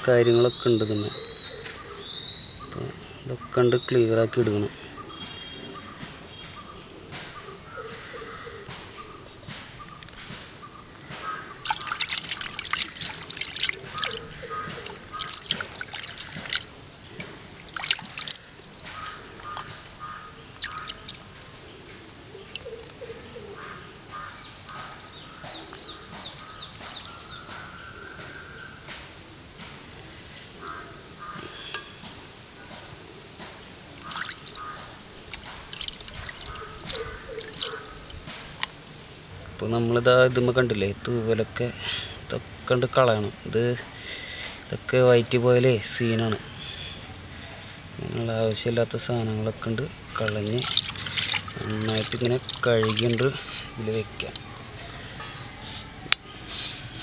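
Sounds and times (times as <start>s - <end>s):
water sloshing in a steel bowl: 11.5s - 19.9s, 20.5s - 21.4s, 34.0s - 38.9s, 50.0s - 55.5s.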